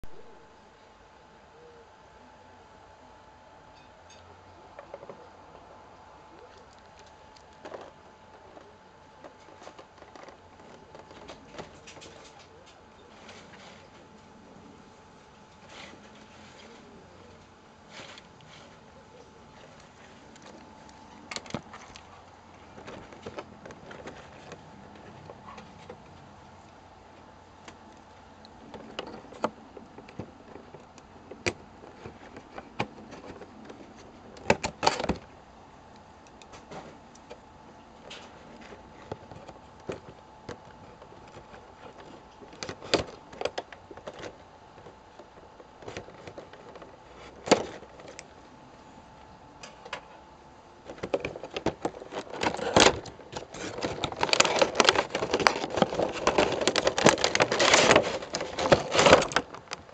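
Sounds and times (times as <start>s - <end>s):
faint steady hum: 0.0s - 59.9s
clicks and knocks of handling: 6.3s - 14.3s, 15.5s - 35.3s, 38.0s - 48.4s, 50.8s - 59.9s.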